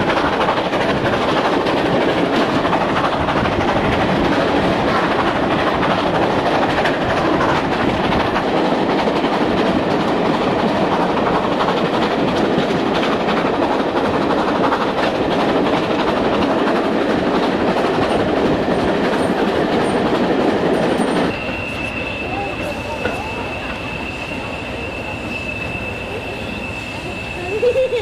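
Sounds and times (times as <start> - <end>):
train rushing at speed: 0.0 - 28.0.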